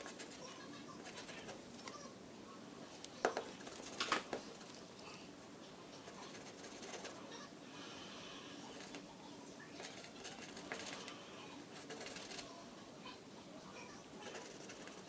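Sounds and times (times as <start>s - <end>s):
pen scratching on paper: 0.0s - 1.6s, 6.1s - 7.3s, 9.8s - 12.4s, 14.2s - 15.0s.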